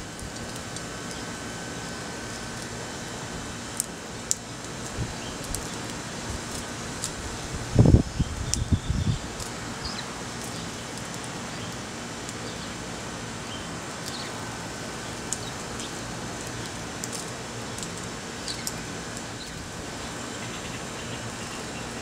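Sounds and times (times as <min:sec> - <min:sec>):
sparrows chirping: 0:04.4 - 0:05.9, 0:07.2 - 0:22.0.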